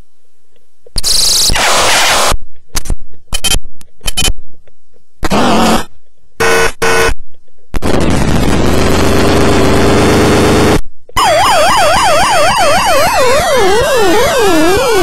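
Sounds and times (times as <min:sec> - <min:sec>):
toy electronic siren: 0:11.2 - 0:15.0.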